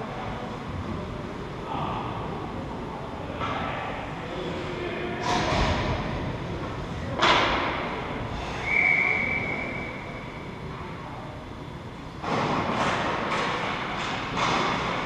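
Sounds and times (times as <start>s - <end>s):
referee's whistle blast: 8.5s - 10.1s
sharp crack echoing off rink: 12.2s - 15.0s.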